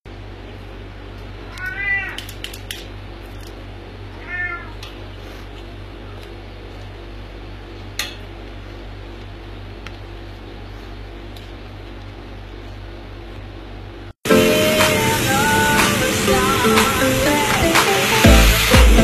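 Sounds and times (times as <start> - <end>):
steady low hum: 0.1 - 19.0
kitten mewing: 1.4 - 2.3, 4.2 - 4.8.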